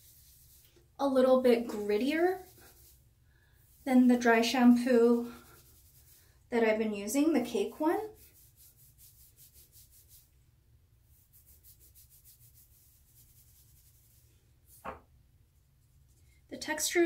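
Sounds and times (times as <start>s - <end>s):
fingertips rubbing hair: 0.0s - 3.0s, 3.6s - 6.2s, 7.2s - 10.4s, 11.1s - 14.8s.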